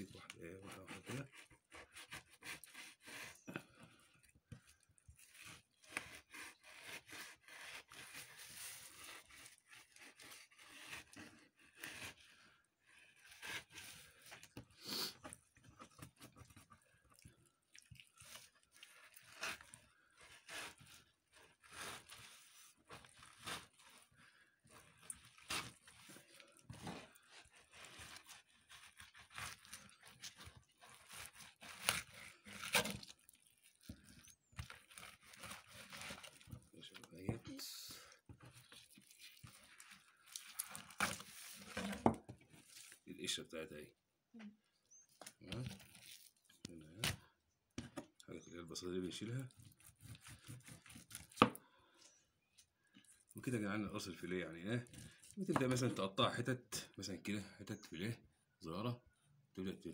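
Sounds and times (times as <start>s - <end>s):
knife scraping fish on cutting board: 18.2s - 24.0s, 24.7s - 33.1s, 34.1s - 36.5s, 49.5s - 51.6s.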